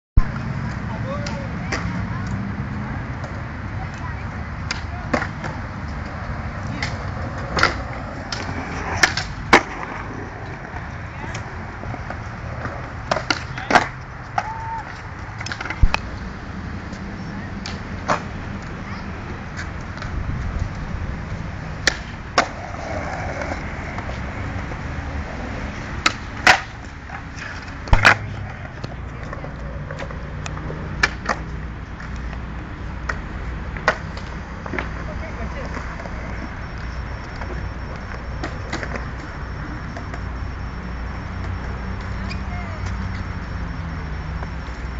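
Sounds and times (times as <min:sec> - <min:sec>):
skateboards clacking on ground: 0:00.2 - 0:43.4
skateboard wheels rolling on concrete: 0:00.2 - 0:44.9.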